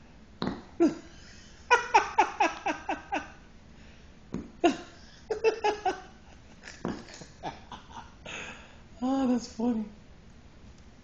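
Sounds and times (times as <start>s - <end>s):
person giggling: 0.8s - 3.4s, 4.6s - 8.5s.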